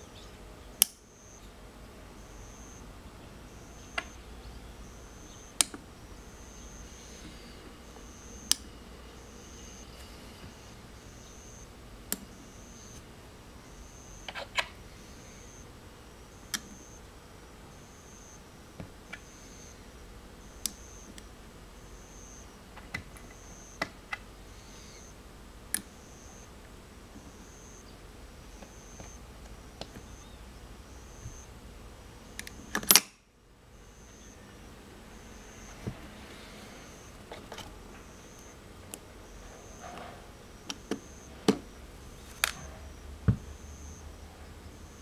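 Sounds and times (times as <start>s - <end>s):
magnetic toys clicking together: 32.4s - 33.1s.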